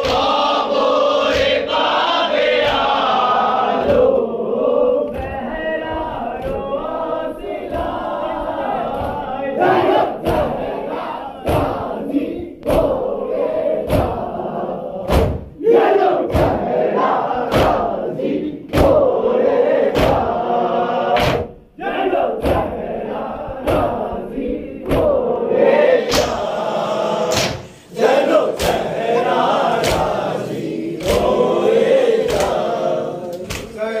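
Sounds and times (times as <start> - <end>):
men chanting in unison: 0.0 - 34.0
chest slapping: 27.3 - 27.7.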